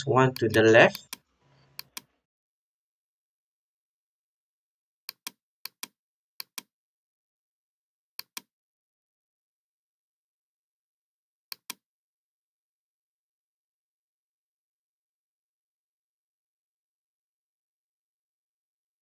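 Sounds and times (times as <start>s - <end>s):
computer mouse clicks: 0.3s - 2.1s, 5.1s - 6.7s, 8.2s - 8.5s, 11.5s - 11.8s.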